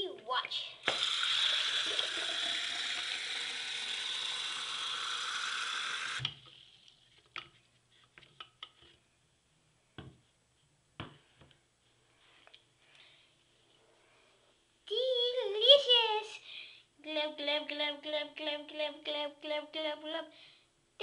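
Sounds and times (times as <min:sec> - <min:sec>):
faucet running into sink: 0:00.8 - 0:06.5.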